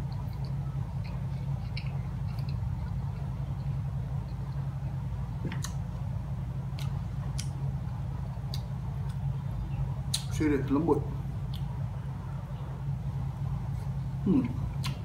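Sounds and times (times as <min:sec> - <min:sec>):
person chewing food: 0:00.0 - 0:04.7
steady low hum: 0:00.0 - 0:15.0
wet mouth clicks: 0:00.1 - 0:03.3, 0:14.8 - 0:15.0.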